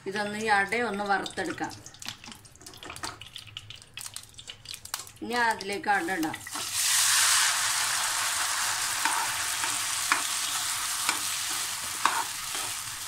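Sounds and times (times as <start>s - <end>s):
food sizzling in hot fat: 5.8s - 13.0s
steel spoon scraping pan: 8.9s - 12.9s.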